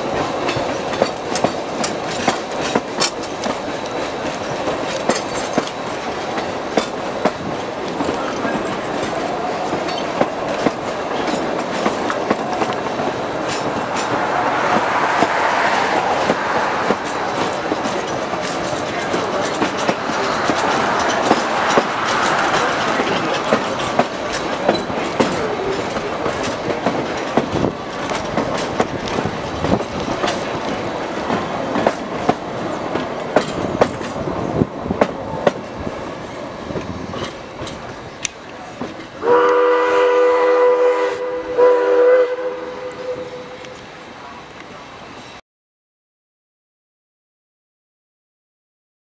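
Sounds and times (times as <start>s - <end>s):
train wheels clicking over rail joints: 0.0s - 39.7s
steam whistle chord: 39.2s - 43.8s.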